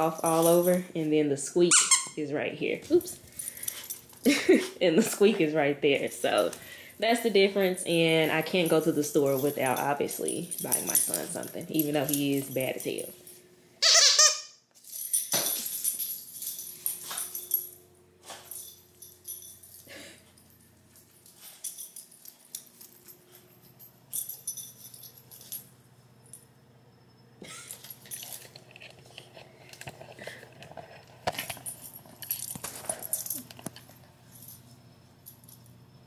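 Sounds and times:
jingling and rattling: 0.0s - 13.4s, 14.8s - 26.4s, 27.4s - 35.8s
dog toy squeak: 1.7s - 2.2s, 13.8s - 14.6s.

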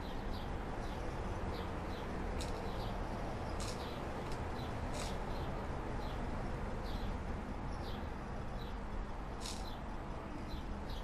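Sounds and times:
low background noise: 0.0s - 11.0s
small birds chirping: 0.0s - 11.0s.

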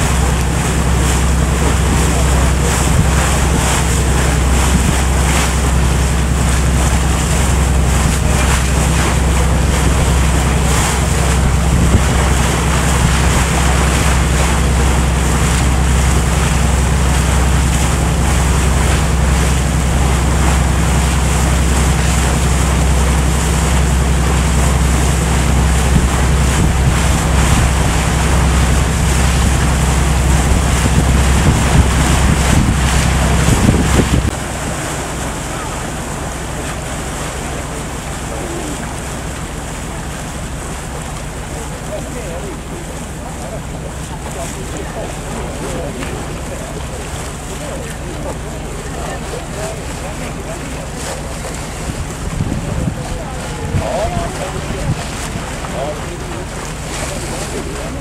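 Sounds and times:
wind buffeting microphone: 0.0s - 34.6s, 51.5s - 56.4s
boat engine humming: 0.0s - 58.0s
water rushing past hull: 0.0s - 58.0s.

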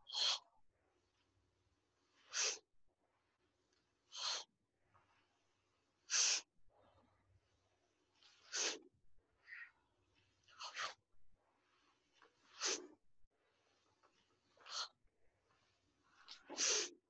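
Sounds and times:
faint breaths: 0.0s - 0.6s, 2.0s - 2.7s, 4.1s - 7.4s, 8.1s - 17.0s
forceful exhales: 8.4s - 8.8s, 16.4s - 16.9s.

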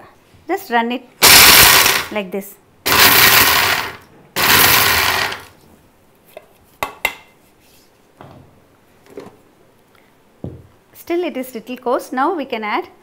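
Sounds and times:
mixer-grinder grinding nuts: 1.2s - 2.1s, 2.9s - 5.6s.

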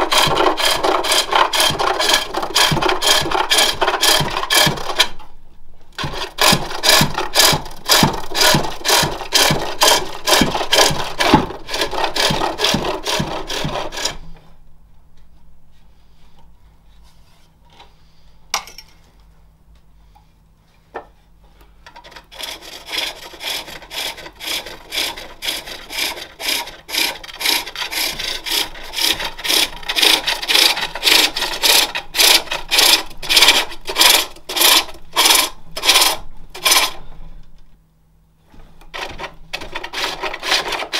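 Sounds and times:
gouge scraping wood on lathe: 0.0s - 5.1s, 6.0s - 14.4s, 22.0s - 37.0s, 38.6s - 40.9s.

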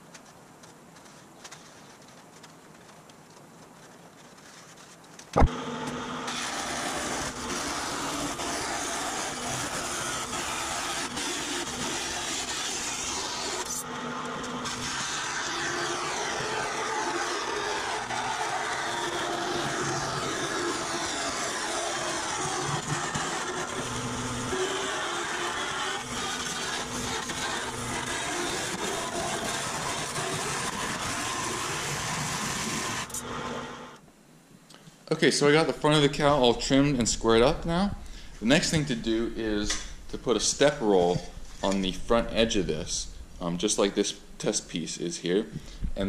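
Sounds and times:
bandsaw cutting metal sheet: 5.4s - 34.0s.

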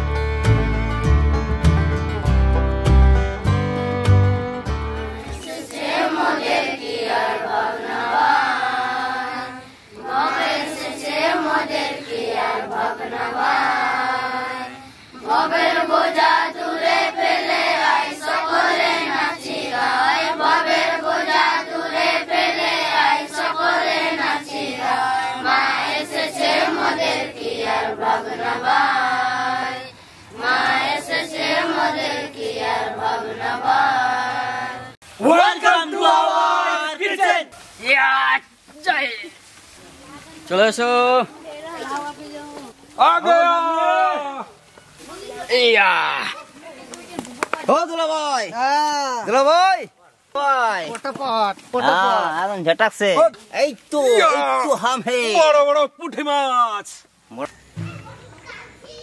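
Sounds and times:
group chanting a sung prayer: 5.2s - 37.5s.

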